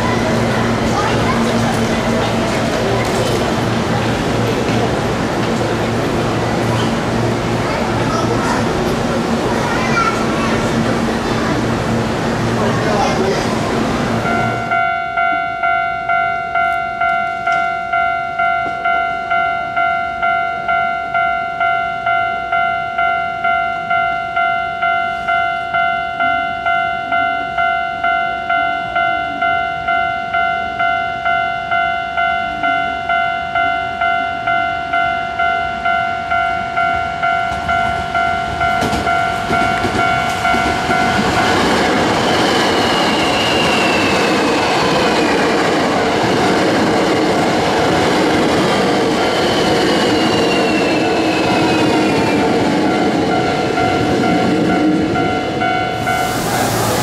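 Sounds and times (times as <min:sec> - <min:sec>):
train wheel and running noise: 0:00.0 - 0:21.3, 0:32.1 - 0:57.0
level crossing warning bell: 0:14.2 - 0:57.0.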